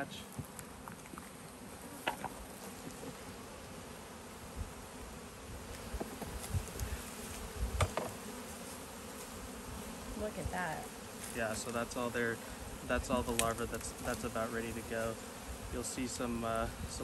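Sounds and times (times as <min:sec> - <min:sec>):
honeybees buzzing: 0:00.0 - 0:17.0
knocks and thumps on hive: 0:02.0 - 0:03.4, 0:05.5 - 0:17.0.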